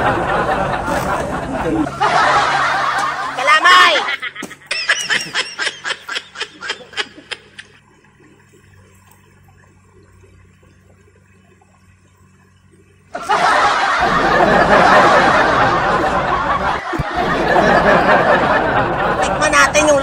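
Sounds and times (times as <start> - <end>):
person giggling: 3.9 - 7.8.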